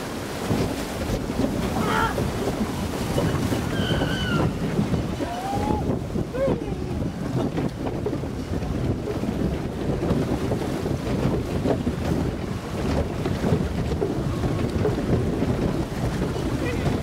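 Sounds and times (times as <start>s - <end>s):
water rushing along channel: 0.0s - 17.0s
wind buffeting microphone: 0.0s - 17.0s.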